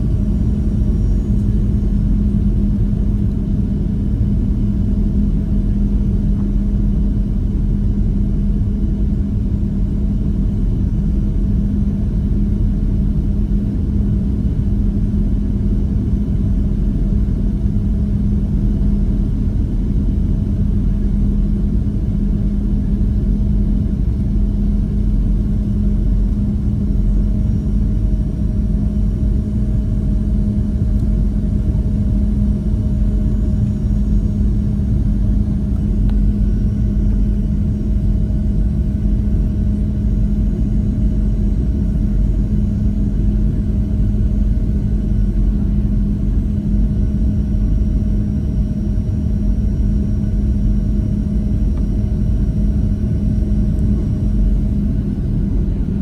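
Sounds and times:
airplane cabin rumble: 0:00.0 - 0:56.0
steady hum: 0:00.0 - 0:56.0.

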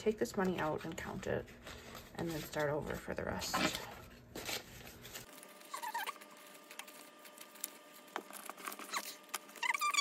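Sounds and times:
banknotes rustling and flicking: 0:00.3 - 0:10.0.

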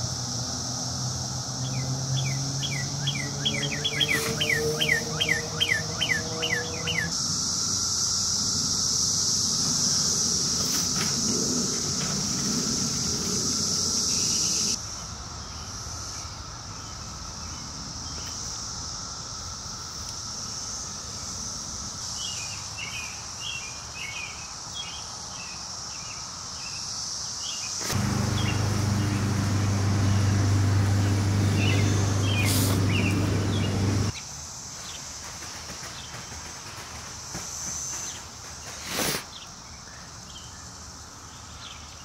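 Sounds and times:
cicadas droning: 0:00.0 - 0:42.0
birds chirping: 0:01.7 - 0:07.1, 0:27.8 - 0:34.1
loud low steady hum: 0:27.8 - 0:34.1.

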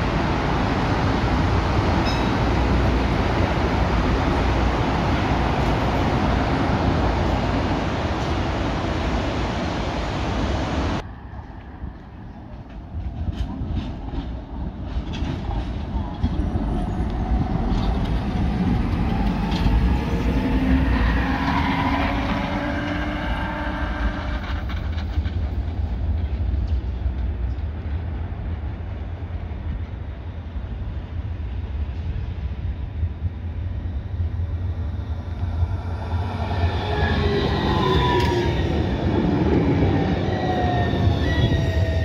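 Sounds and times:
steel wheels rumbling on rails: 0:00.0 - 0:42.0
tram approaching: 0:00.0 - 0:42.0.

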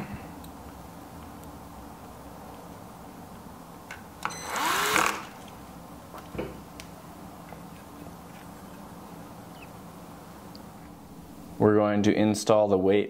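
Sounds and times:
electric screwdriver running: 0:04.4 - 0:05.4.

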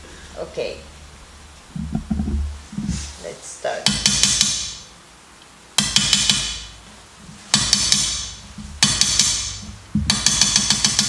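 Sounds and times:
background music with low beat: 0:01.7 - 0:03.1, 0:07.4 - 0:11.0
hammer tapping a chisel: 0:03.9 - 0:04.8, 0:05.8 - 0:06.7, 0:07.5 - 0:11.0.

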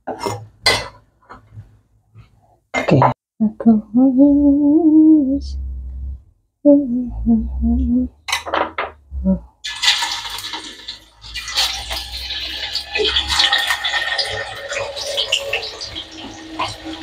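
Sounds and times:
woman humming: 0:03.4 - 0:08.3, 0:09.1 - 0:09.6
tofu sizzling in hot oil: 0:09.7 - 0:17.0.

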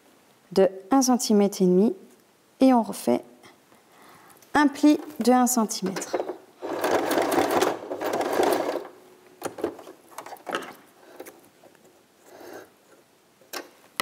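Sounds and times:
sewing machine stitching: 0:06.0 - 0:09.0.

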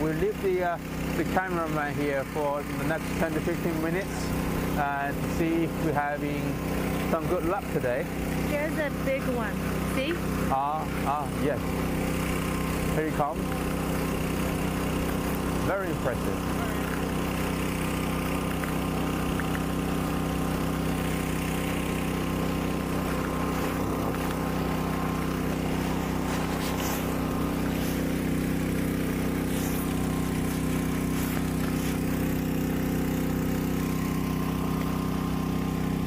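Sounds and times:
engine running steadily: 0:00.0 - 0:36.0
faint water splashes: 0:11.6 - 0:35.8.

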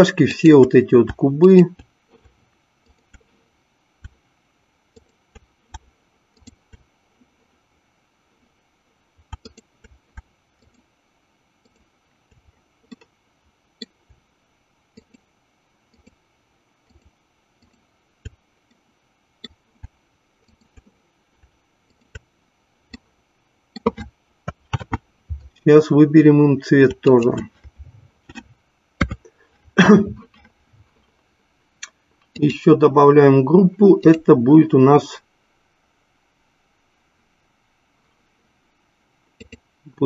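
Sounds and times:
computer mouse clicks: 0:01.8 - 0:03.3, 0:04.9 - 0:06.9, 0:09.2 - 0:10.9, 0:11.6 - 0:13.1, 0:14.9 - 0:15.3, 0:15.9 - 0:16.2, 0:16.8 - 0:18.8, 0:19.4 - 0:22.3, 0:23.7 - 0:25.5, 0:28.3 - 0:29.3, 0:39.4 - 0:39.6.

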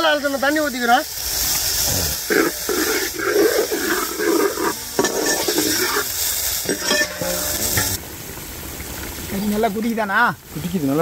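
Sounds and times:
food sizzling in a pot: 0:00.0 - 0:08.1
water pouring: 0:00.0 - 0:10.1
stirring in a pot: 0:02.1 - 0:08.0.

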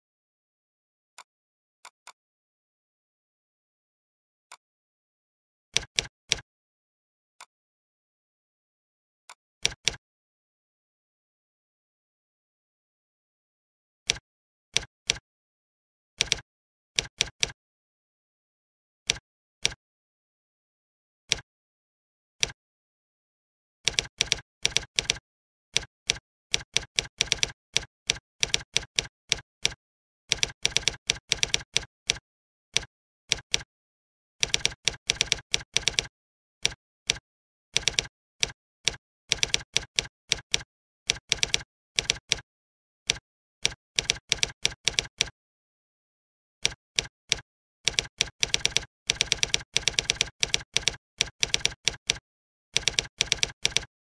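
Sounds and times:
computer keyboard typing: 0:16.2 - 0:16.4, 0:23.9 - 0:25.2, 0:25.8 - 0:32.2, 0:32.8 - 0:33.7, 0:34.4 - 0:37.2, 0:37.8 - 0:42.4, 0:43.1 - 0:45.4, 0:46.6 - 0:52.2, 0:52.8 - 0:53.9.

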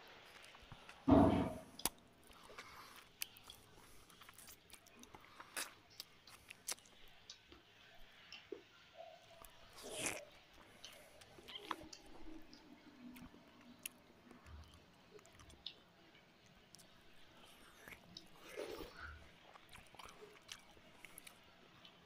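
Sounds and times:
man chewing food: 0:00.0 - 0:01.1, 0:01.7 - 0:22.0
loud thud: 0:01.1 - 0:01.6.

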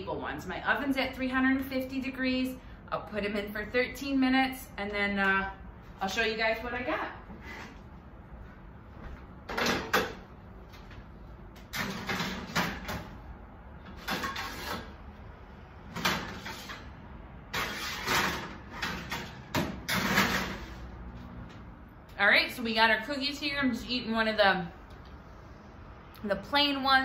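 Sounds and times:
metal baking sheets sliding: 0:14.0 - 0:15.0, 0:16.0 - 0:20.9.

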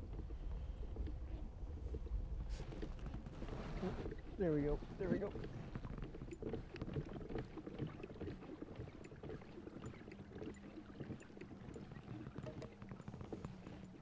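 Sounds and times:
water lapping against a kayak hull: 0:00.0 - 0:14.0
small ticks and knocks: 0:05.1 - 0:14.0.

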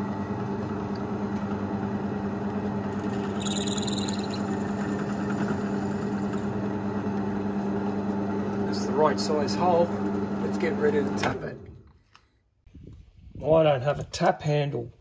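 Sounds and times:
drill press motor humming: 0:00.0 - 0:11.3
high-pitched drill bit whine: 0:03.0 - 0:06.1.

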